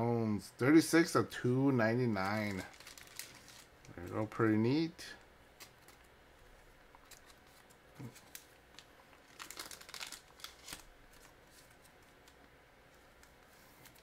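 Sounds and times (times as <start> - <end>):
cards rustling and crinkling: 2.0 - 4.4, 5.6 - 14.0.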